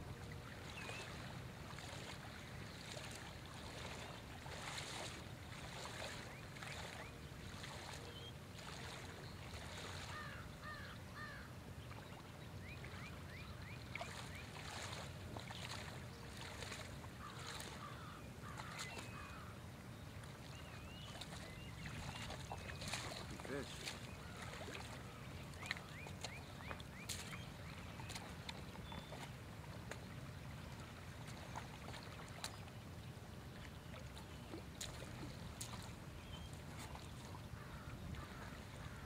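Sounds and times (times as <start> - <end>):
small waves lapping on stony shore: 0.0 - 39.0
birds chirping: 5.0 - 30.2, 34.0 - 39.0.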